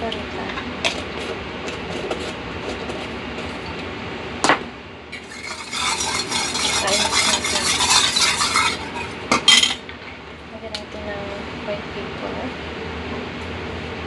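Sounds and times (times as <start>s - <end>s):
spoon scraping metal bowl: 5.2s - 9.6s.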